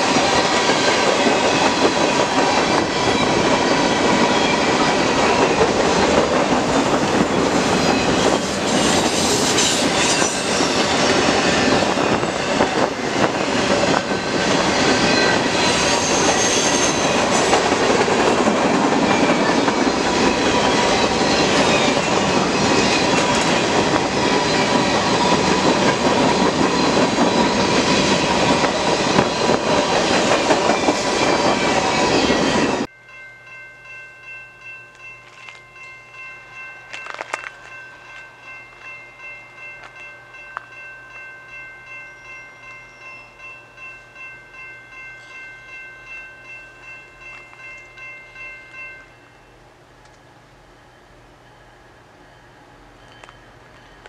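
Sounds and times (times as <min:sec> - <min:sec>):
train wheels rumbling on rails: 0:00.0 - 0:32.9.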